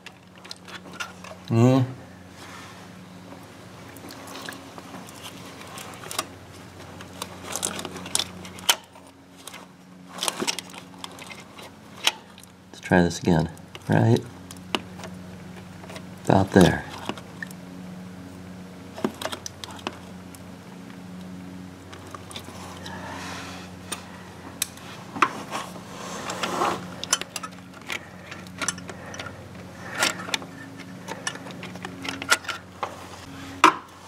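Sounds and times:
metal parts clicking and scraping: 0.0 - 1.4, 7.0 - 12.4, 25.6 - 32.9.

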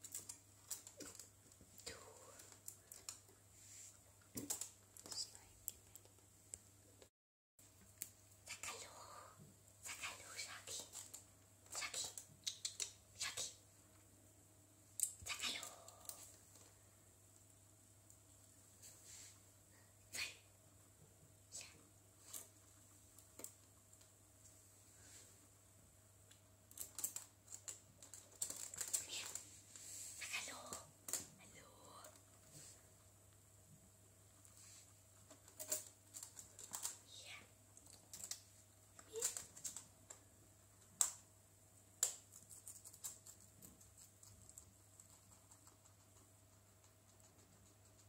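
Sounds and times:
guinea pig nibbling stalk: 9.9 - 14.1, 26.3 - 33.4, 34.1 - 48.0.

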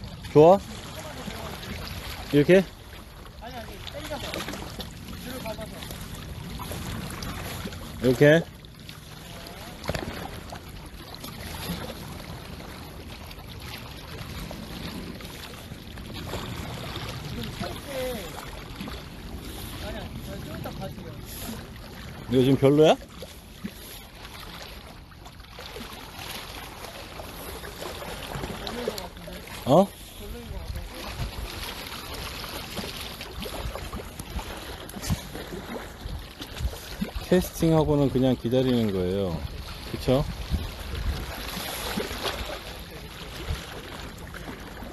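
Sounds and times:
wind and sea rushing: 0.0 - 44.9
wind buffeting microphone: 29.8 - 42.6.

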